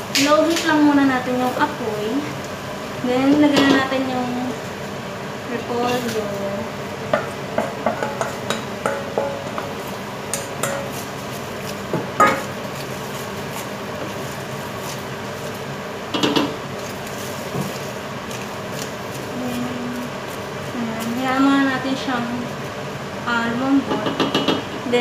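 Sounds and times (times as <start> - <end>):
wooden spatula knocking in pot: 7.1 - 9.7
steel bowl clanking on pot: 12.2 - 12.5.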